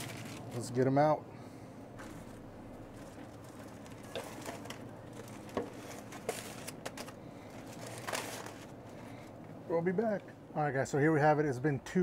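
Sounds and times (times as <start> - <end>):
foil crinkling: 0.0 - 0.8, 2.0 - 8.8.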